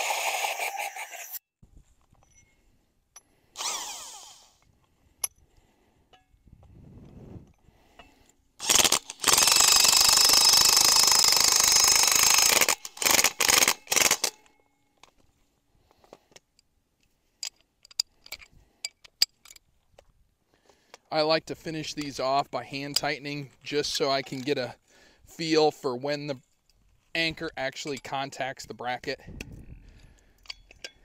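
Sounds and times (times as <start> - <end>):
impact wrench driving screw: 8.6 - 14.5.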